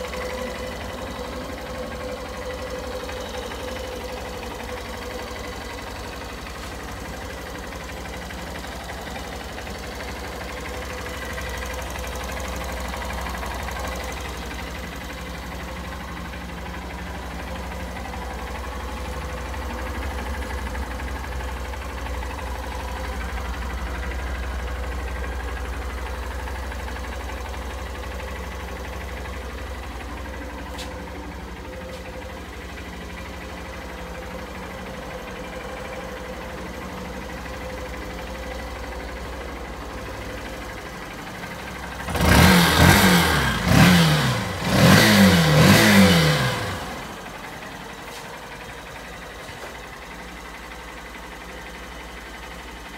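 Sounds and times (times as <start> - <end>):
motorcycle engine idling: 0.0 - 52.9
motorcycle engine revving: 39.9 - 47.7.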